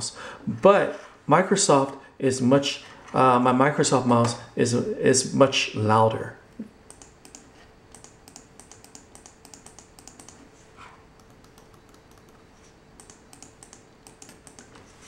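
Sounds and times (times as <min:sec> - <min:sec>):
mouse buttons clicking: 0:06.9 - 0:10.4, 0:11.2 - 0:12.4, 0:13.0 - 0:14.7.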